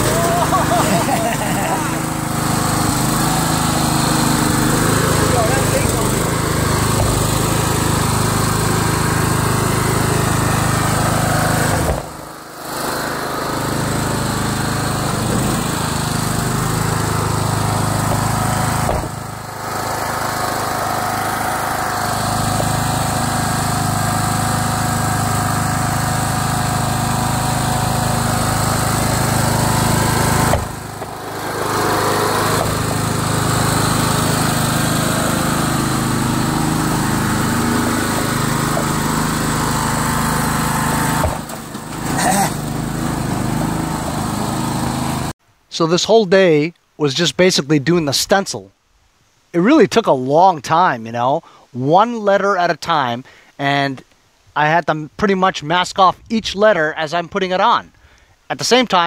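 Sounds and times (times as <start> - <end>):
lawn tractor engine running: 0.0 - 45.4.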